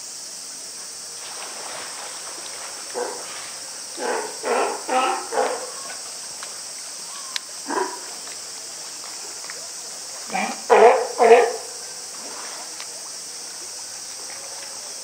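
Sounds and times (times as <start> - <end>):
sea lion barking: 4.0 - 6.0, 7.6 - 8.2, 10.3 - 11.8.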